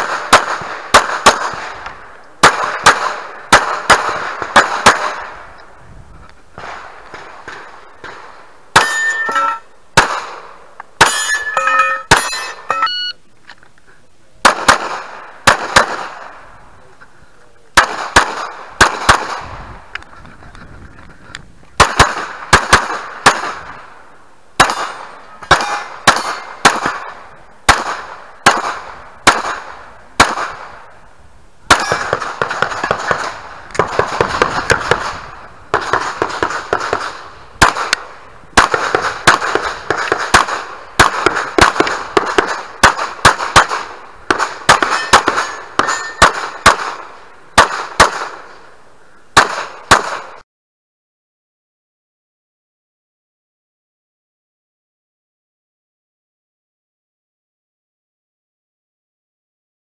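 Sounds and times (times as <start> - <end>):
pistol shots: 0.0 - 5.4, 6.6 - 12.8, 14.4 - 16.4, 17.8 - 19.5, 21.8 - 23.9, 24.6 - 30.8, 31.7 - 48.5, 49.4 - 50.4.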